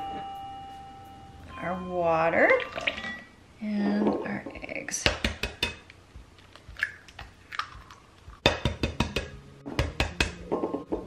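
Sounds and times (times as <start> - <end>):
eggs cracking on glass bowl: 5.1 - 10.4.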